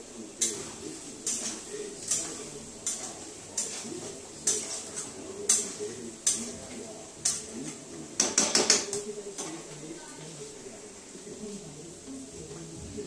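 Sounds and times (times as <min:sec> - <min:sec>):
faint oil sizzle: 0:00.0 - 0:08.2
spoon scraping metal pan: 0:00.4 - 0:07.6.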